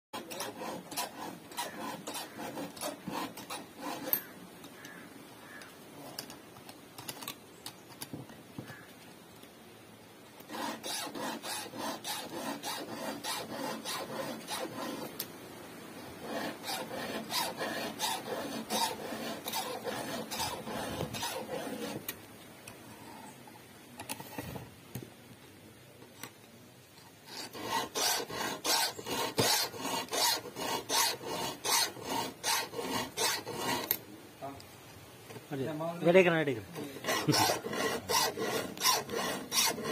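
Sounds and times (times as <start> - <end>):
file rasping on chainsaw chain: 0.1 - 4.4, 10.4 - 15.3, 16.2 - 22.2, 27.3 - 34.0, 36.8 - 39.9.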